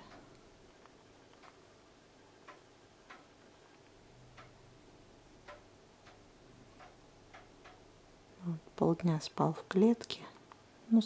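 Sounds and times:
faint uneven ticks: 0.0 - 1.7, 2.4 - 4.7, 5.4 - 7.9.

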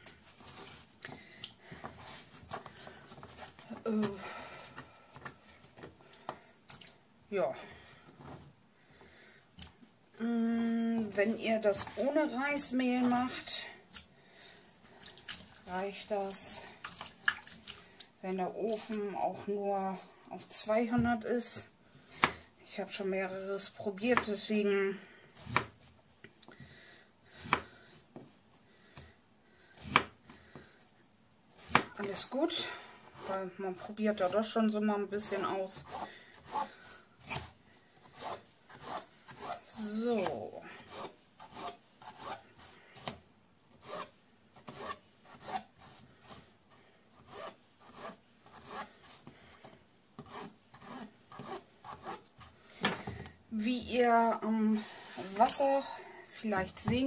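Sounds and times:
knife slicing potato: 25.4 - 25.8, 29.8 - 30.2, 31.5 - 32.3, 50.2 - 52.5.

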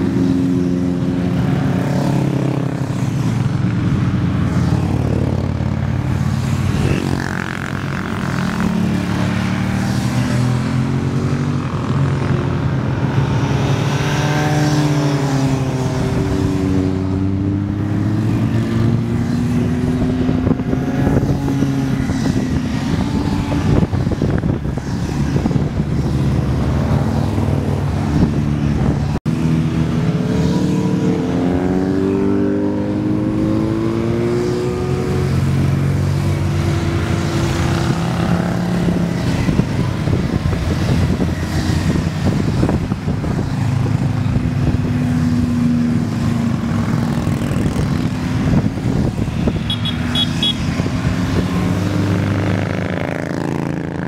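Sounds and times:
motorcycles riding past: 0.0 - 54.0.

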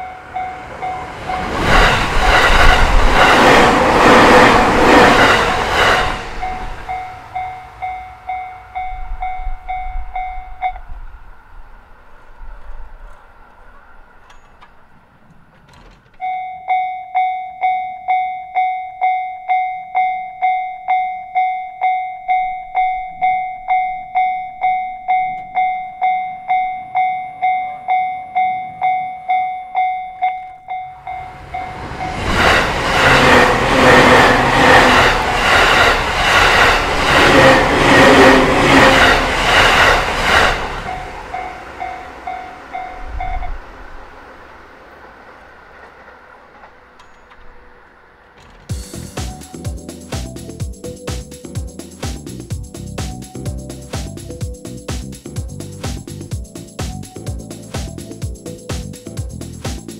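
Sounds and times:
railway crossing alarm dinging: 0.0 - 55.0
train wheels clattering over rail joints: 1.3 - 7.0, 12.5 - 16.3, 31.9 - 41.5, 44.9 - 49.3.

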